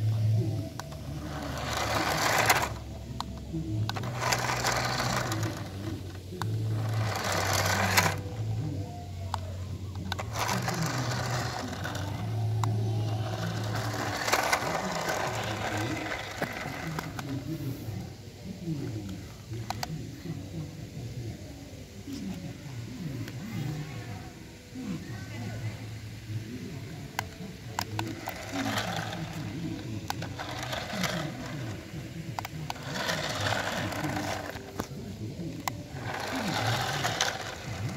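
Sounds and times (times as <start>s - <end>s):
toy car motor whirring: 0.0s - 18.2s, 26.8s - 37.9s.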